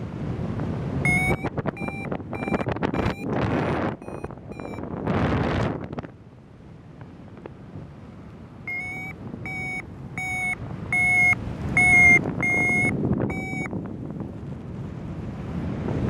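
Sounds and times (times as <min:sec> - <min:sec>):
wind rushing on microphone: 0:00.0 - 0:16.0
variometer short electronic beeps: 0:01.0 - 0:04.9, 0:08.7 - 0:13.7.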